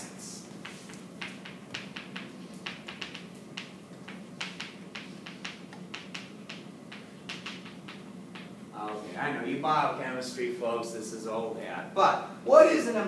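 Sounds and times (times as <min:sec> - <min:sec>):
chalk writing on chalkboard: 0:00.6 - 0:01.0.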